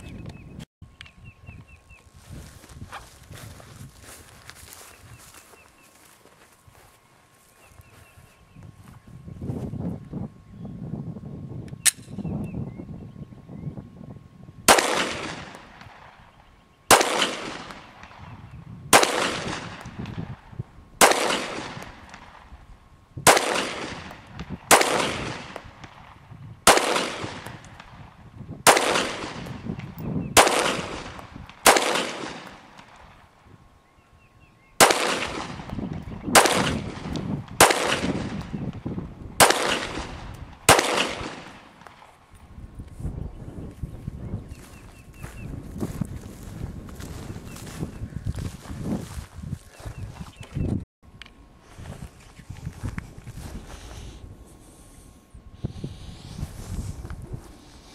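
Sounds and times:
pistol shots with echo: 14.7 - 16.2, 16.9 - 18.3, 18.9 - 22.4, 23.2 - 33.1, 34.8 - 38.6, 39.4 - 42.0.

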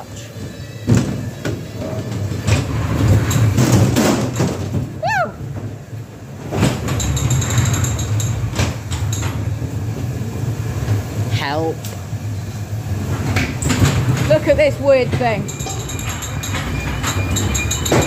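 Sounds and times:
ride car rumbling along track: 0.0 - 18.0
sharp knocks and bangs: 2.4 - 4.9.

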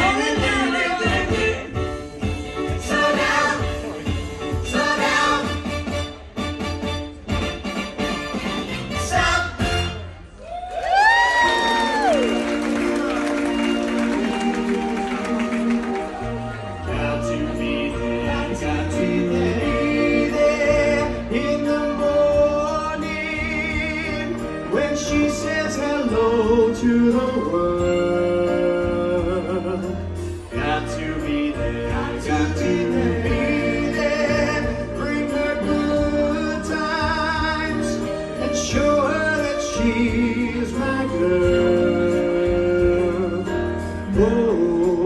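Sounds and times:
amplified backing music: 0.0 - 10.4, 11.2 - 45.0
man singing into a microphone: 16.9 - 45.0.

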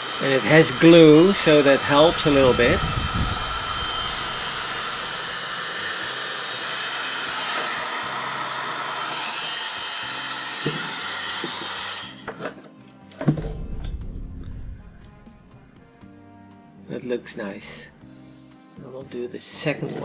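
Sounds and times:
heat gun blowing: 0.0 - 12.3.

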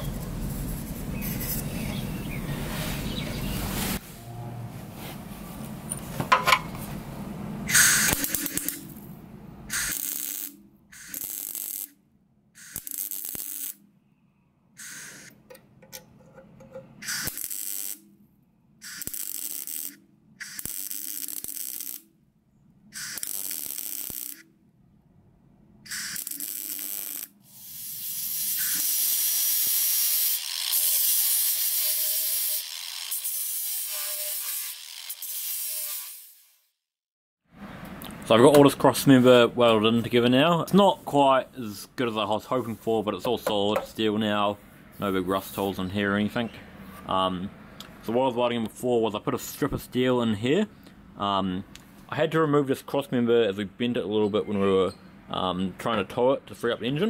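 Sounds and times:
welder buzzing: 7.7 - 9.0, 9.7 - 11.9, 12.6 - 13.8, 14.8 - 15.3, 17.0 - 18.1, 18.8 - 22.1, 23.0 - 24.4, 25.9 - 36.6
angle grinder on steel: 27.9 - 36.5.

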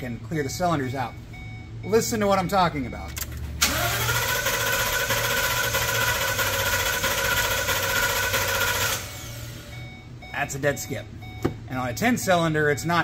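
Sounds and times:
engine cranking on starter: 3.3 - 9.6.

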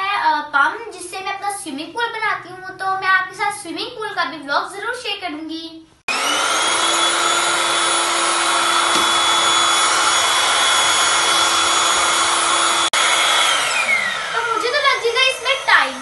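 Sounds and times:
electric air pump running: 6.1 - 16.0.

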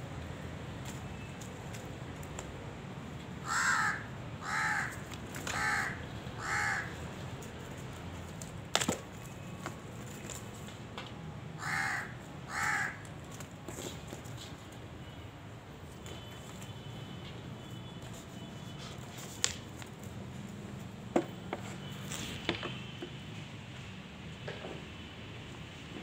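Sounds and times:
crow cawing: 3.4 - 7.0, 11.6 - 13.1.

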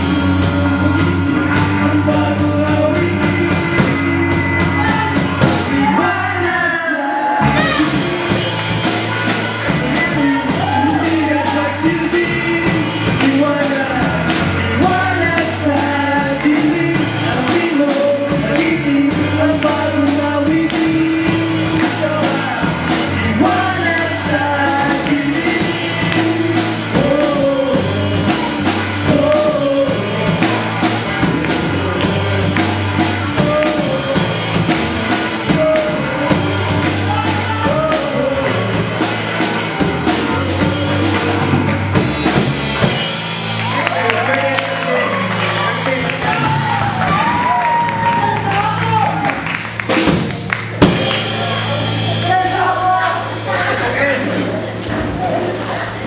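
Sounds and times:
men singing together: 0.0 - 8.8, 9.7 - 41.7
drum kit: 0.0 - 56.0
electric guitars: 0.0 - 56.0.

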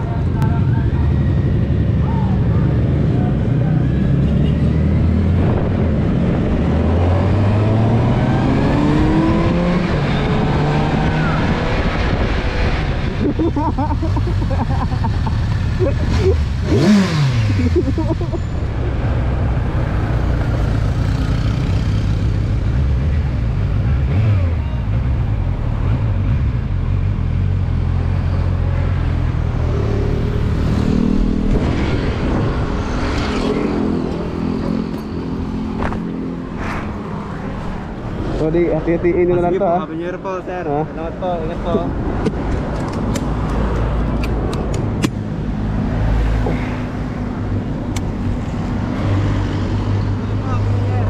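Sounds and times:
road noise rushing: 0.0 - 51.0
motorcycle engine accelerating: 3.2 - 18.4, 20.3 - 36.4
wind rushing on microphone: 5.0 - 13.5, 30.5 - 34.6.

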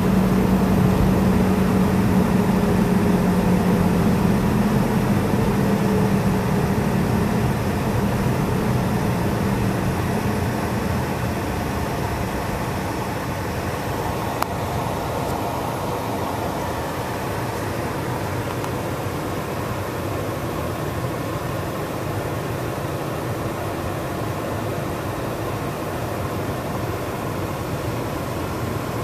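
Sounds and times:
tyre road noise: 0.0 - 17.8
car engine hum: 0.0 - 22.2.

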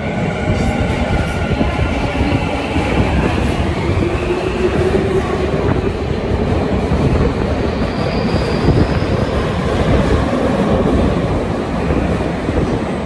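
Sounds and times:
subway train wheels rumbling: 0.0 - 13.0.

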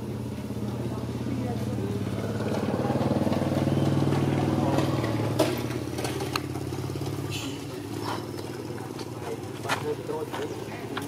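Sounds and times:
small engine humming: 0.0 - 11.0.

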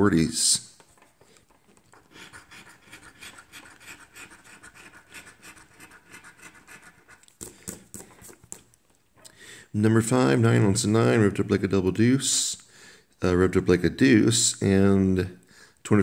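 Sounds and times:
coin scratching a lottery ticket: 1.9 - 7.3.

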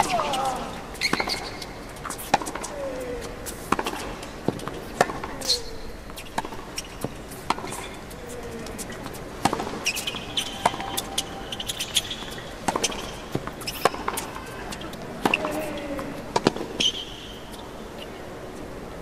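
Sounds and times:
racket striking tennis ball: 0.0 - 2.7, 3.5 - 7.8, 9.0 - 14.4.

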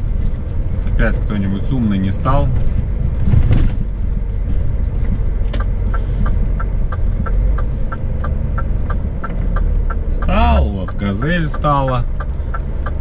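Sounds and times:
truck diesel engine running: 0.0 - 13.0
turn signal ticking: 3.8 - 13.0.

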